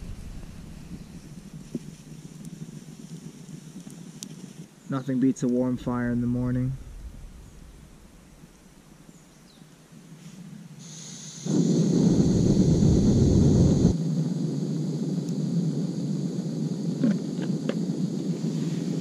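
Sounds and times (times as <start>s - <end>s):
camping stove burner roaring: 0.0s - 6.4s, 10.8s - 19.0s
gas hissing: 10.8s - 19.0s.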